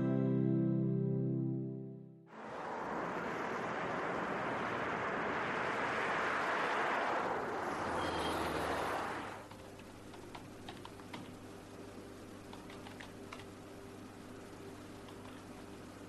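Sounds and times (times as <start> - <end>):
road traffic: 2.3 - 10.5
keyboard typing: 9.4 - 11.3, 12.5 - 13.5, 14.9 - 15.6
low steady hum: 9.5 - 16.0.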